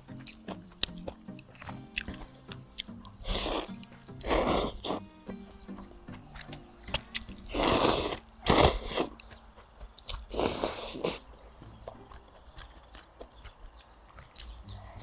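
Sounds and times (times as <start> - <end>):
chewing: 0.0 - 5.0, 6.1 - 15.0
small mouth clicks: 0.2 - 5.0, 12.2 - 15.0.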